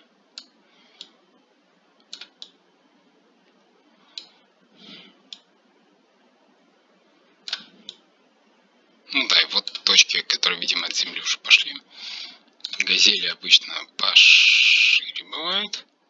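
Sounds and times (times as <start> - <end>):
mouse and keyboard clicks: 2.0 - 2.6, 7.5 - 8.0.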